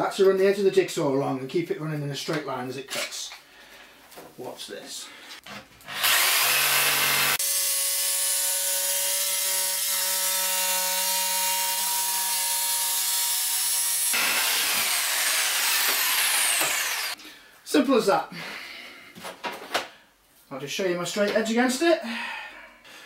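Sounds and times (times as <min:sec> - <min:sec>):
electric jigsaw cutting board: 0:05.8 - 0:17.2.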